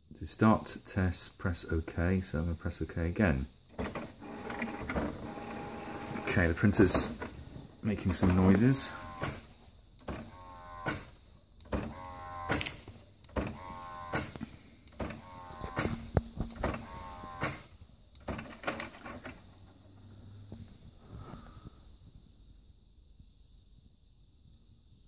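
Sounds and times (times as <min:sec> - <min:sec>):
printer mechanism clicking: 0:03.7 - 0:07.4, 0:08.0 - 0:19.4
printer low hum: 0:03.7 - 0:20.7
printer rising whine: 0:03.8 - 0:11.2, 0:11.8 - 0:12.8, 0:13.4 - 0:17.7.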